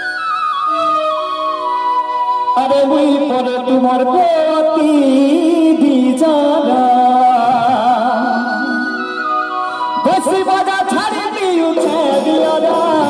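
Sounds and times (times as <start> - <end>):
instrumental accompaniment: 0.0 - 13.0
man singing into microphone: 2.6 - 9.0, 10.0 - 13.0.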